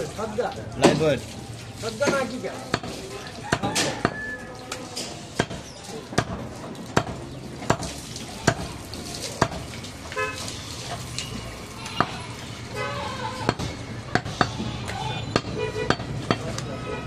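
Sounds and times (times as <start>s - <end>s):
knife chopping meat on wood: 2.1s - 4.3s, 5.4s - 8.7s, 9.4s - 9.6s.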